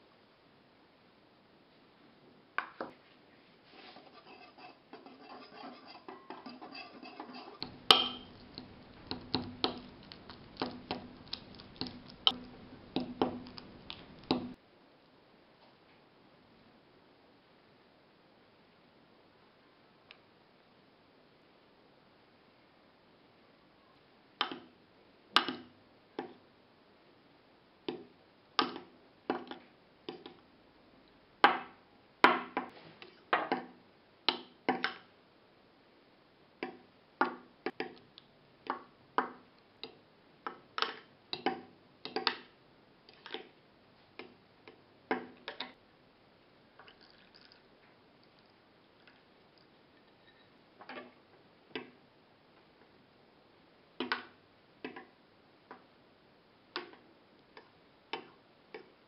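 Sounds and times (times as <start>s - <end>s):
fork clinking against ceramic bowl: 4.2s - 8.4s.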